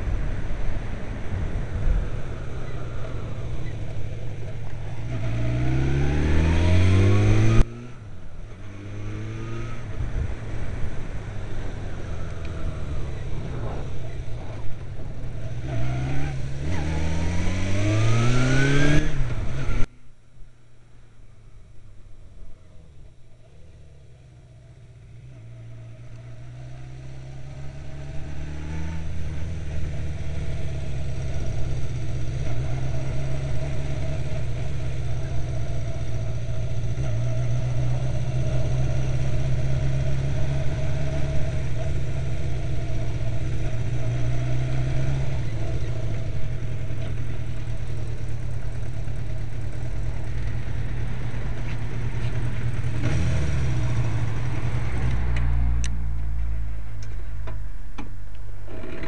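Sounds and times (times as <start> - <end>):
motorcycle engine running: 20.9 - 59.0.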